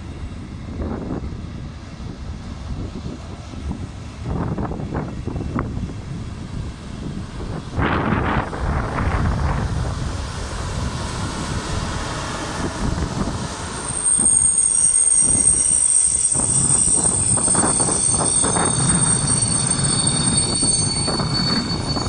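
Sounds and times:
train wheels rumbling on track: 0.0 - 22.0
high-pitched wheel squeal: 11.9 - 22.0.

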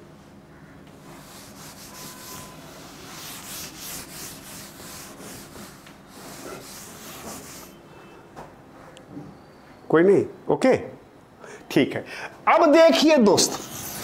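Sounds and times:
cloth rubbing chalkboard: 1.0 - 7.8, 13.4 - 14.0.

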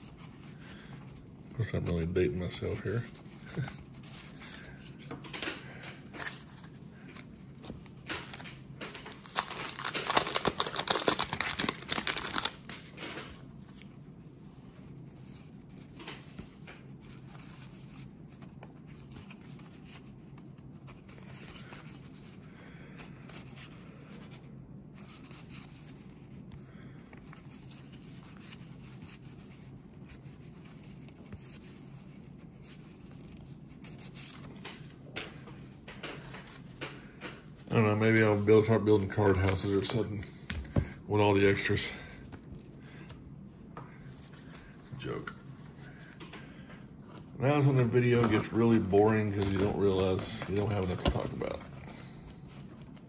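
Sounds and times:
cards rustling and clicking: 0.0 - 53.0
wrapper tearing: 8.1 - 13.3.

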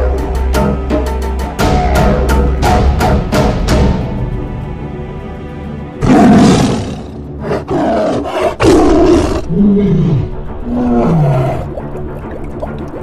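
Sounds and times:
background music: 0.0 - 13.0
tiger roaring: 6.0 - 11.7.

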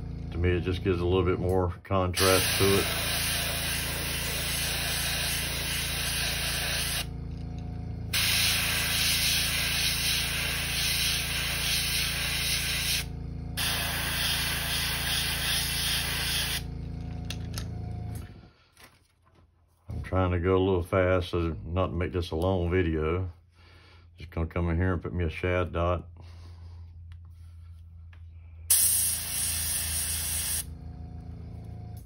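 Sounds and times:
steady low hum: 0.0 - 19.0, 19.6 - 32.0
airbrush hissing: 2.2 - 7.1, 8.1 - 16.7, 28.7 - 30.7.

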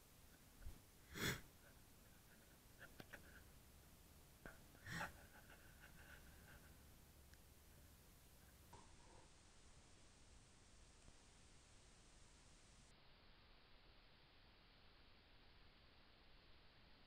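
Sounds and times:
short breathy puffs: 0.6 - 3.5
faint clicks: 7.3 - 9.2.

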